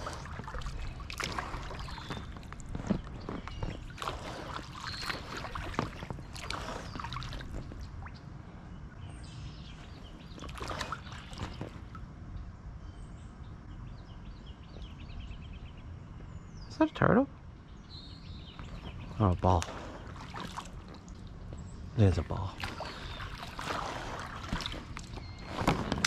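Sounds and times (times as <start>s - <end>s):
kayak paddle splashing in water: 0.0s - 8.2s, 10.3s - 11.9s, 19.6s - 21.2s, 22.6s - 26.0s
small birds chirping: 0.0s - 26.0s.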